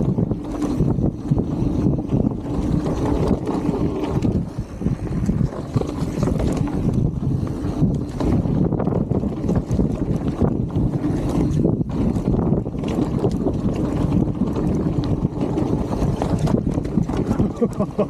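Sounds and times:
bike knocks and rattles: 0:00.0 - 0:04.5
tyres rumbling on dirt: 0:00.0 - 0:18.0
wind buffeting microphone: 0:00.0 - 0:18.0.

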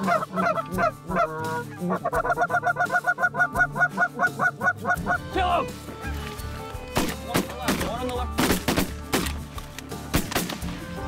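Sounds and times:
geese honking: 0:00.0 - 0:08.3.

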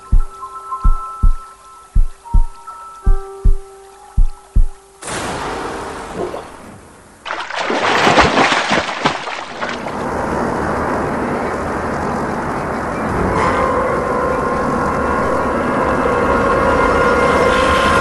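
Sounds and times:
steady rain: 0:04.8 - 0:07.3.

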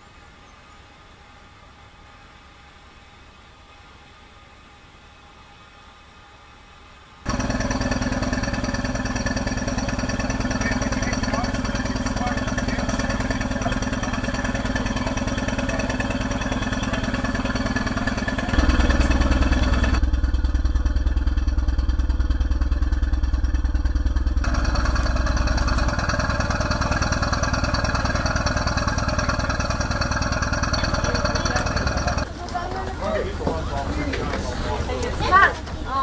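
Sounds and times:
boat engines idling: 0:07.3 - 0:36.0.

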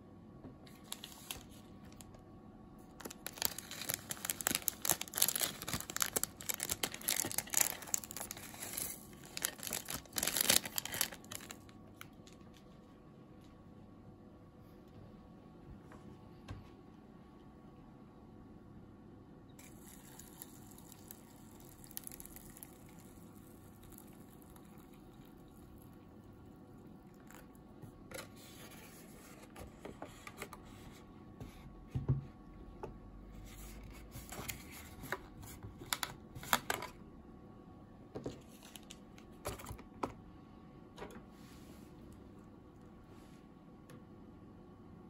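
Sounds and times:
paper crinkling: 0:00.7 - 0:02.1, 0:03.0 - 0:13.0, 0:38.2 - 0:39.8
hot water pouring into cup: 0:19.6 - 0:26.0.

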